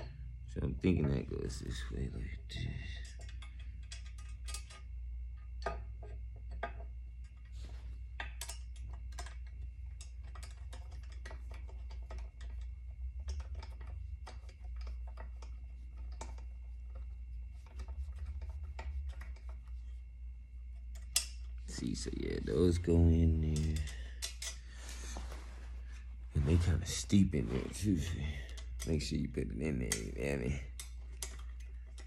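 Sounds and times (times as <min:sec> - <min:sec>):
low steady hum: 0:00.0 - 0:32.0
metal pins clicking and tapping: 0:02.5 - 0:07.5, 0:08.1 - 0:17.0, 0:20.8 - 0:21.8, 0:23.3 - 0:24.7.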